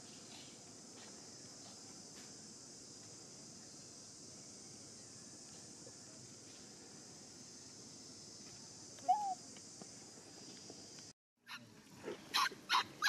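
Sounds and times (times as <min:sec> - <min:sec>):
insects droning: 0:00.0 - 0:13.0
chirping call: 0:09.1 - 0:09.4.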